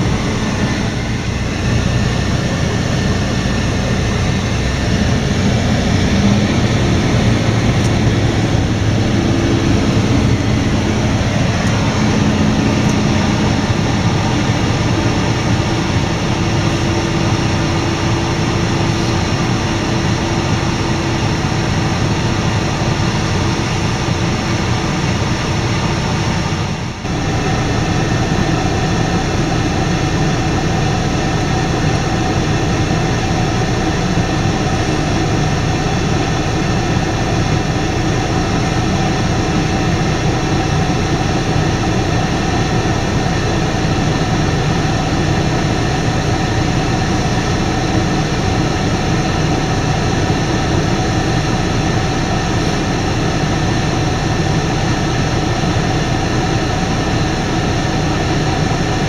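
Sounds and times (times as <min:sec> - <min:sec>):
threshing machinery tones: 0:00.0 - 0:18.4
combine harvester engine drone: 0:00.0 - 0:59.0.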